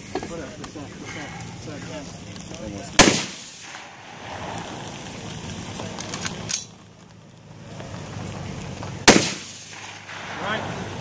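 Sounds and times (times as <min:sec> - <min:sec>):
rifle shots: 0:03.0 - 0:04.6, 0:09.0 - 0:11.0.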